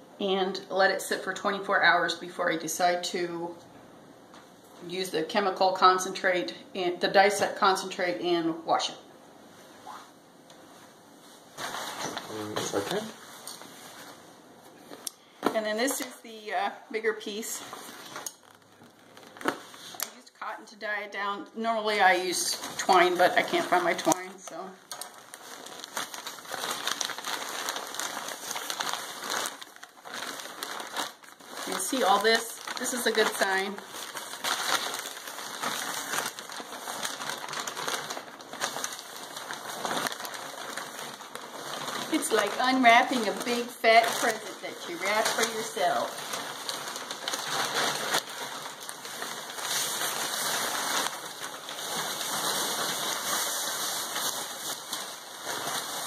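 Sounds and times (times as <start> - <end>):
paper crinkling and rustling: 11.6 - 16.2, 17.3 - 20.2, 22.0 - 56.0.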